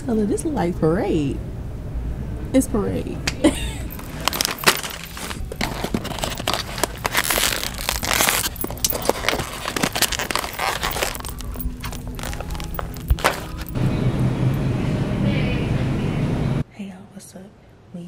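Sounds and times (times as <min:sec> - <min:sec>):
packets rustling and crinkling: 0:03.8 - 0:13.8.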